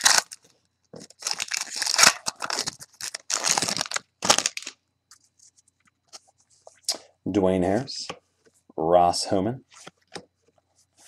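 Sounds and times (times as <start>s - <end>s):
wrappers tearing and crinkling: 0.0s - 0.4s, 1.0s - 4.8s.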